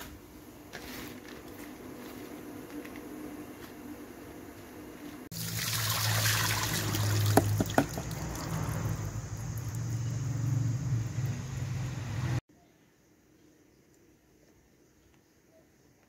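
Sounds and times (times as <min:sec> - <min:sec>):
water pouring through colander: 0:05.3 - 0:09.8
sharp knocks: 0:07.3 - 0:08.1.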